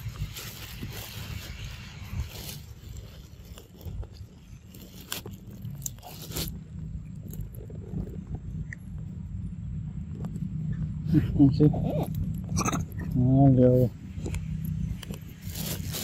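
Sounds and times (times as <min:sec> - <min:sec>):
sharp crunches: 0:00.0 - 0:08.8, 0:14.1 - 0:16.0
steady low rumble: 0:00.0 - 0:16.0.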